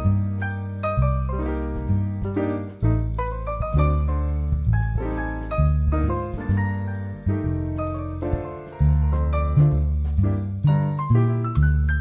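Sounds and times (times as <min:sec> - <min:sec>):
jazz piano music: 0:00.0 - 0:12.0
low bass notes: 0:00.0 - 0:12.0.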